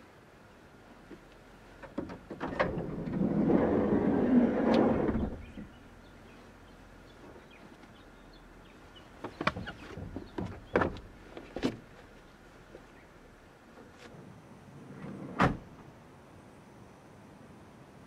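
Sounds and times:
boots bumping van floor: 0:09.2 - 0:12.1.

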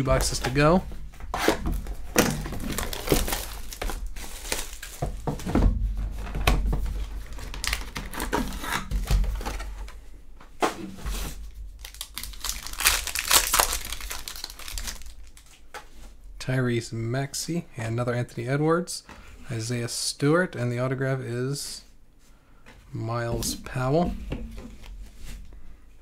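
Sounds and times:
foil wrapper crinkling: 0:01.7 - 0:05.2, 0:07.0 - 0:09.6, 0:11.7 - 0:15.6
foil wrapper tearing: 0:02.3 - 0:05.0, 0:07.2 - 0:08.9, 0:11.8 - 0:15.5.

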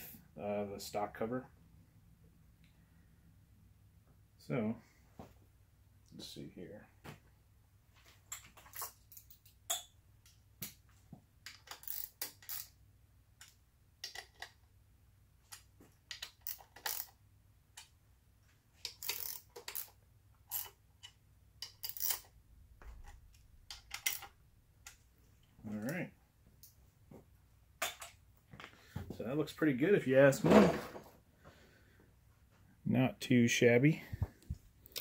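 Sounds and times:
metal parts clicking and clinking: 0:08.3 - 0:09.9, 0:11.4 - 0:12.8, 0:15.5 - 0:17.2, 0:18.8 - 0:22.3, 0:22.9 - 0:25.0.

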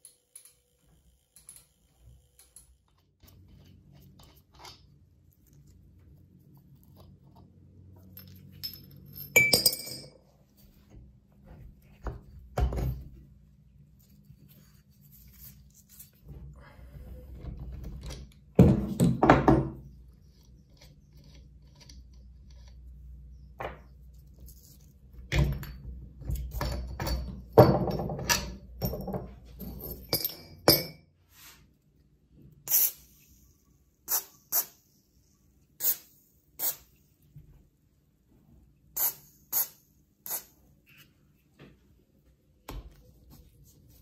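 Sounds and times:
steel parts knocking and clattering: 0:24.6 - 0:31.0.

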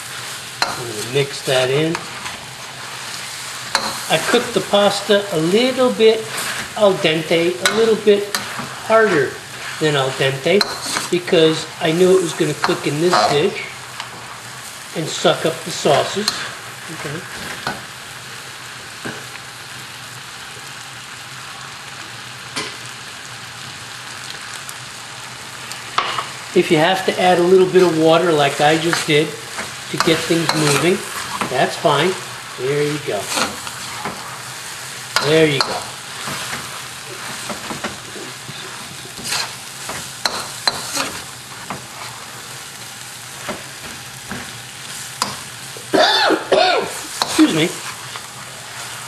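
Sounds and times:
metal spatula scraping: 0:00.0 - 0:14.4, 0:27.2 - 0:45.5
stir-fry sizzling in wok: 0:00.0 - 0:49.0.

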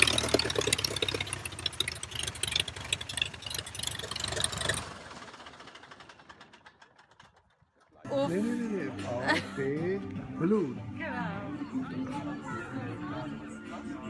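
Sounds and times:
propeller engine idling: 0:00.0 - 0:07.7.

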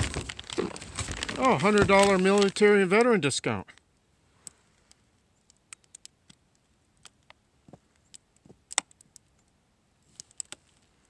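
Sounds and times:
plastic bag crinkling: 0:00.0 - 0:03.1.

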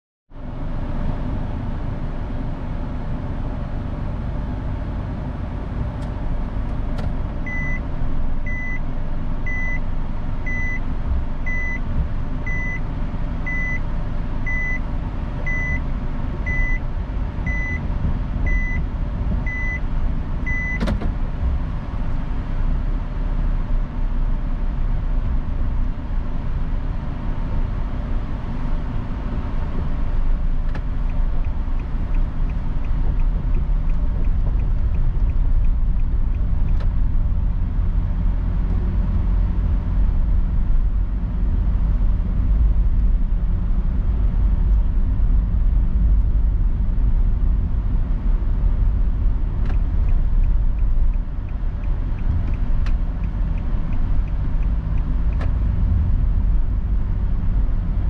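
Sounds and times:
car engine running: 0:00.4 - 0:58.0
reverse warning beeping: 0:07.5 - 0:07.8, 0:08.5 - 0:08.8, 0:09.5 - 0:09.8, 0:10.5 - 0:10.8, 0:11.5 - 0:11.8, 0:12.4 - 0:12.8, 0:13.5 - 0:13.9, 0:14.5 - 0:14.9, 0:15.5 - 0:15.8, 0:16.4 - 0:16.8, 0:17.5 - 0:17.8, 0:18.4 - 0:18.8, 0:19.4 - 0:19.8, 0:20.5 - 0:20.8
gear shift click: 0:20.5 - 0:21.2, 0:30.6 - 0:37.0, 0:49.6 - 0:55.7.

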